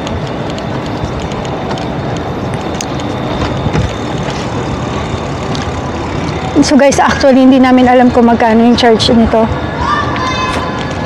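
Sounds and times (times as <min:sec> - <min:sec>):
wind rumbling over microphone: 0:00.0 - 0:11.0.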